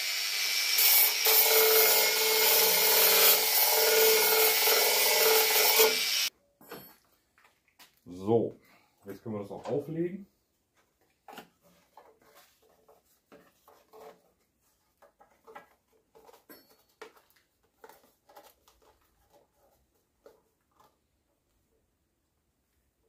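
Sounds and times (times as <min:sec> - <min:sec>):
cardboard rustling: 0:10.7 - 0:21.5.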